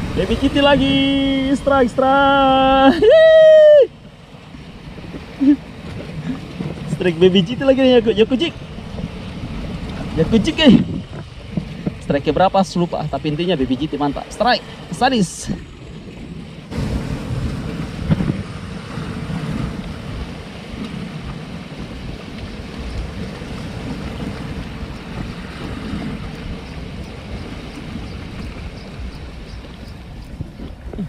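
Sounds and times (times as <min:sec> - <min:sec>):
waves breaking over rocks: 0:00.0 - 0:31.0
wind buffeting microphone: 0:00.0 - 0:31.0.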